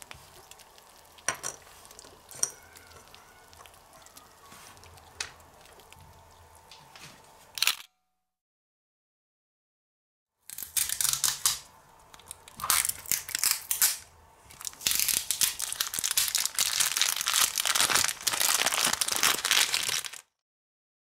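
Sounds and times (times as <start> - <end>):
plastic bag crinkling: 12.2 - 20.3.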